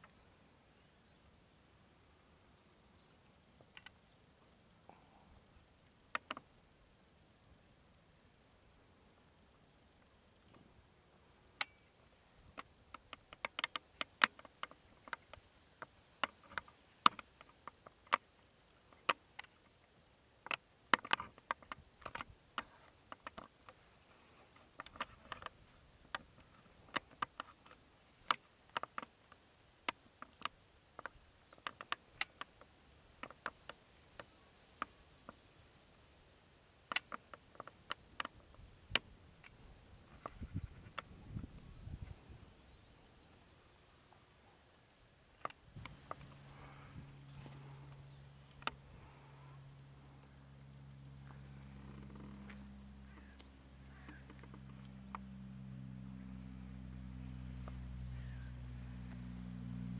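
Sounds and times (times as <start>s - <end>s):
sharp clicks and ticks: 12.5s - 19.7s, 20.4s - 23.8s, 24.6s - 35.4s, 36.9s - 41.5s, 45.3s - 49.2s.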